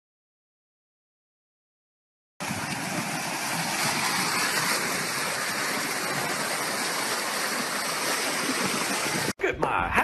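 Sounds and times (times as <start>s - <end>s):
running water rushing: 2.4s - 9.4s.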